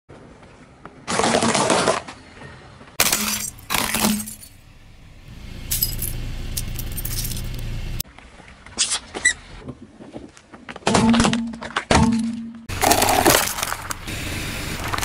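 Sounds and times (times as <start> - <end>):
plastic shards clinking: 3.0 - 4.6
biscuits crunching under tyre: 12.7 - 14.1.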